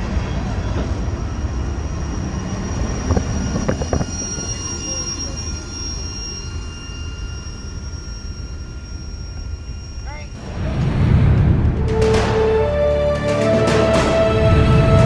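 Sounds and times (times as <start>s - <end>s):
high wheel squeal: 0.0s - 10.7s
train wheels rumbling on rail: 0.0s - 15.0s.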